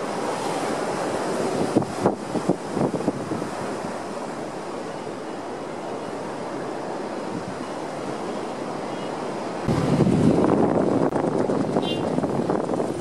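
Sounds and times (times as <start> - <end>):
ocean surf breaking on rocks: 0.0 - 13.0
close rumble with rapid clatter: 9.7 - 13.0.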